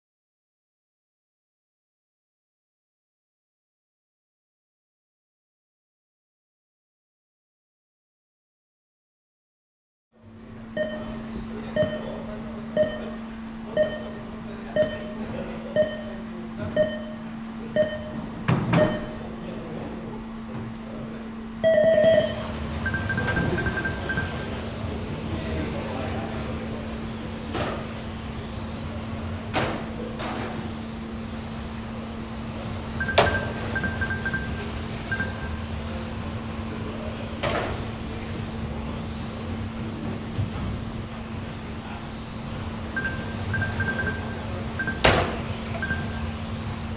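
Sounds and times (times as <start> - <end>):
high electronic beeping: 10.8 - 12.2, 12.8 - 13.2, 13.8 - 15.2, 15.8 - 16.2, 16.8 - 18.2, 21.6 - 24.7, 33.0 - 35.7, 42.9 - 46.4
countdown beeps: 10.8 - 13.2, 13.8 - 15.2, 15.8 - 19.2, 21.6 - 24.6, 33.0 - 35.7, 43.0 - 45.2, 45.8 - 46.3
long start tone: 21.6 - 27.4, 32.9 - 36.4.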